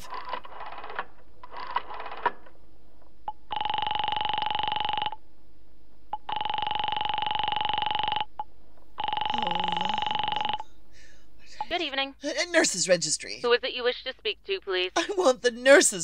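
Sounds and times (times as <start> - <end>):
telephone ringing tone: 3.5 - 5.2, 6.2 - 8.3, 9.0 - 10.7.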